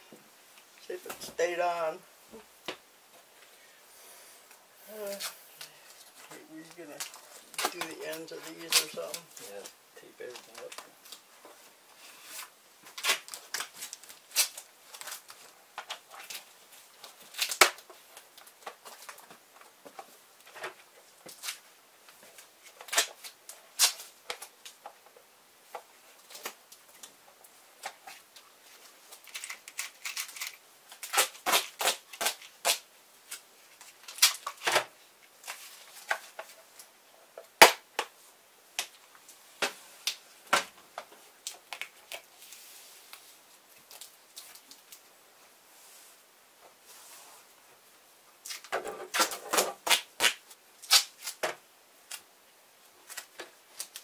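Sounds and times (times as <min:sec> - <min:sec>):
duct tape pulled and torn: 0:07.0 - 0:09.2, 0:12.2 - 0:17.9, 0:22.6 - 0:24.8, 0:29.1 - 0:34.9, 0:48.4 - 0:52.3.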